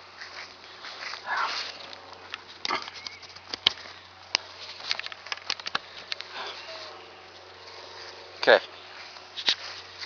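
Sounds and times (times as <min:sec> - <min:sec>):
tent pole clicks and taps: 0:01.9 - 0:06.3.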